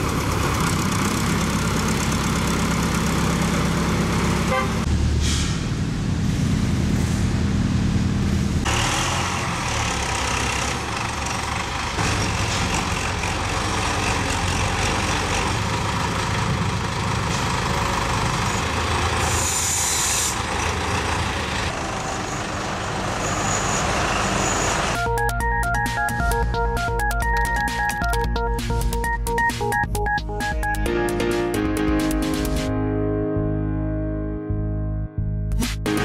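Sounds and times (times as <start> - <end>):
diesel engines running: 0.0 - 32.7.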